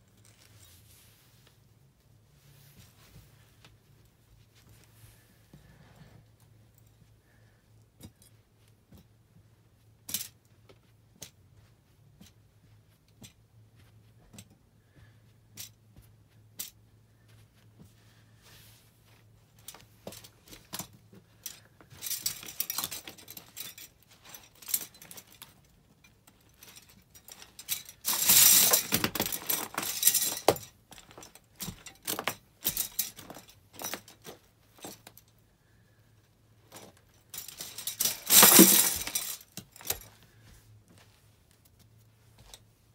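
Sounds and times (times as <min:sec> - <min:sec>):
plastic cutlery crunching underfoot: 0:19.6 - 0:35.2, 0:36.6 - 0:40.4.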